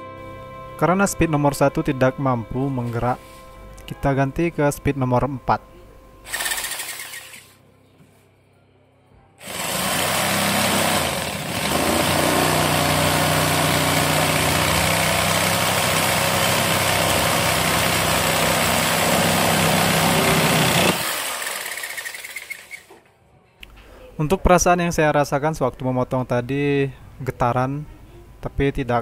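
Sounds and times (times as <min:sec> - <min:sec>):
jigsaw sawing through wood: 0:06.3 - 0:07.6, 0:09.4 - 0:22.9.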